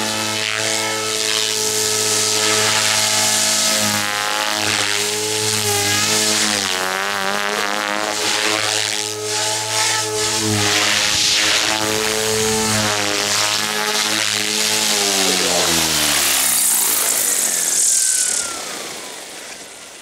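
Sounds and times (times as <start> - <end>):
rc helicopter buzzing: 0.0 - 20.0
rotor blade whoosh: 9.0 - 20.0.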